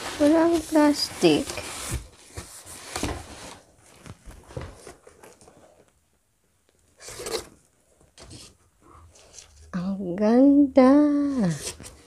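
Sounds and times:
backpack and box handling rustles: 0:00.0 - 0:05.9.

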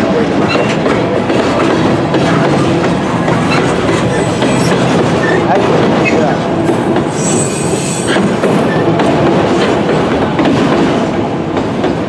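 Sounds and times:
train wheels rumbling on rails: 0:00.0 - 0:12.0
high wheel squeal: 0:02.3 - 0:09.0.

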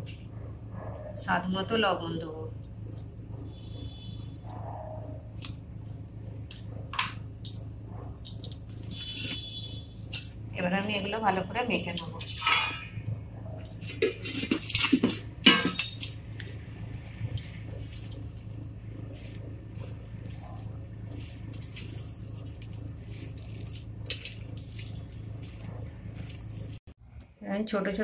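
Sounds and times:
steel clatter: 0:12.0 - 0:18.4
hand mixing crunchy filling: 0:13.6 - 0:26.9.

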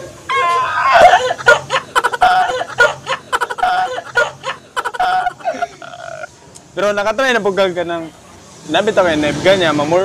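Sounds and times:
young men laughing: 0:00.4 - 0:06.3.

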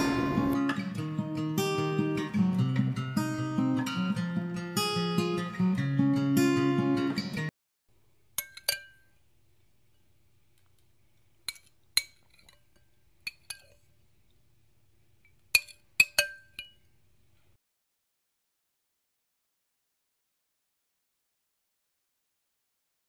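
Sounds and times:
dishes clinking: 0:08.4 - 0:09.2, 0:11.4 - 0:13.9, 0:15.5 - 0:16.9.

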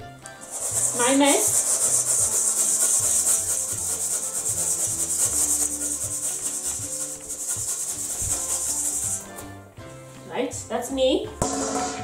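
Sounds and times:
fast shaker rhythm: 0:00.4 - 0:09.4.

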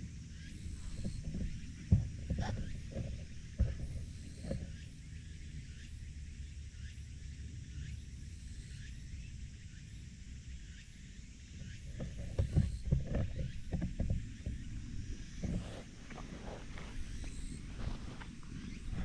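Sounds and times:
wind rumbling on microphone: 0:00.0 - 0:05.9, 0:11.4 - 0:19.0
soft thuds: 0:00.7 - 0:04.7
rustling in dry grass: 0:11.9 - 0:19.0.

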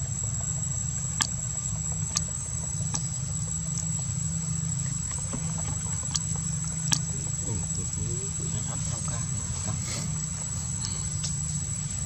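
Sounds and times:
engine idling hum: 0:00.0 - 0:12.0
high insect whine: 0:00.0 - 0:12.0
sharp ticks: 0:00.3 - 0:05.3, 0:06.0 - 0:08.1.

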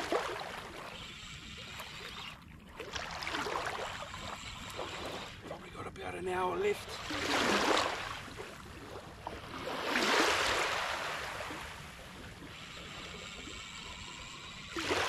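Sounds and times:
small waves washing over sand: 0:02.9 - 0:12.1.

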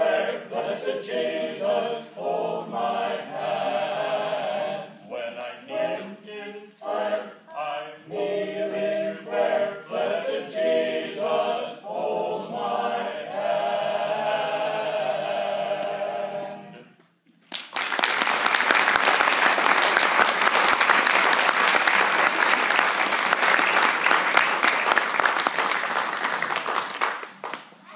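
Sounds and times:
vocal group singing in harmony: 0:00.0 - 0:17.1
audience applause: 0:17.5 - 0:27.8.

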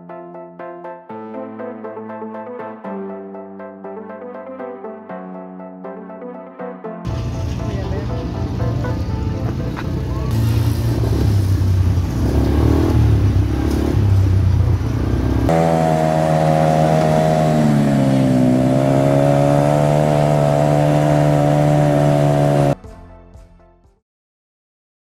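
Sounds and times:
quad bike engine running: 0:07.1 - 0:22.8.

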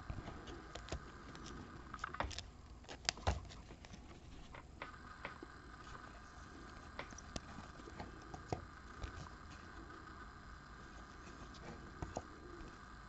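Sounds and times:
plastic card sleeves rustling: 0:00.0 - 0:04.8, 0:05.8 - 0:10.1.

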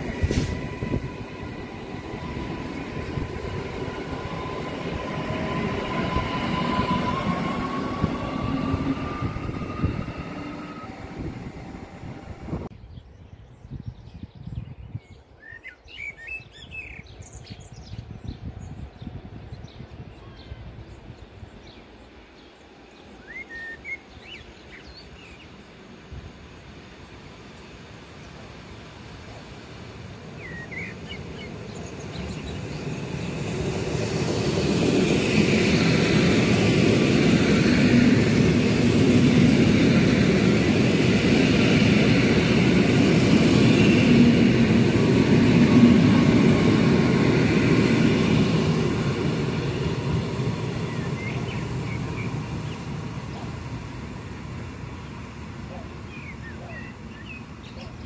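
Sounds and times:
train wheels rumbling on rails: 0:00.0 - 0:12.7, 0:25.9 - 0:57.9.

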